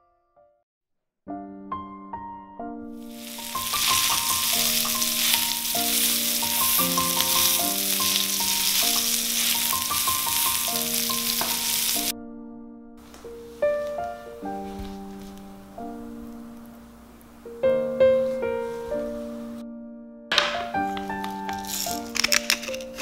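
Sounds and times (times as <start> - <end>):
soft piano music: 1.3 - 23.0
steak sizzling in a pan: 3.0 - 12.1, 20.7 - 23.0.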